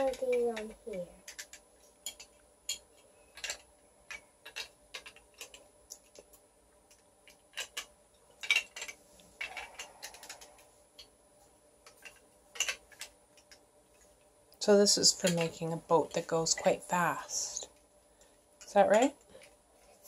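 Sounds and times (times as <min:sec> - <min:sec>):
plastic toy bricks clicking: 0:00.0 - 0:11.1, 0:11.8 - 0:13.6.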